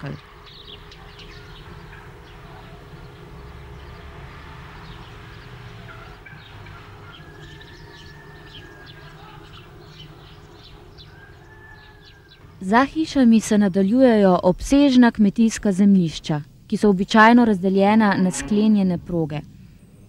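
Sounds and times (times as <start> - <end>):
low rumble: 0.0 - 12.6, 17.9 - 20.0
small birds chirping: 0.0 - 13.8
faint hum: 0.0 - 20.0.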